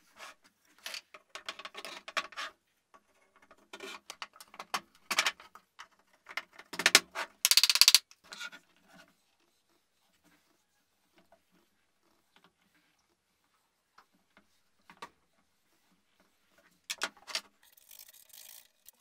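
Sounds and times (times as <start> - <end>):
wooden pieces knocking and sliding: 3.4 - 8.0.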